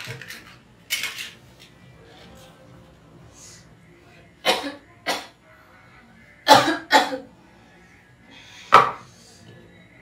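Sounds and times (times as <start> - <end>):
woman coughing: 4.4 - 5.4, 6.5 - 7.3.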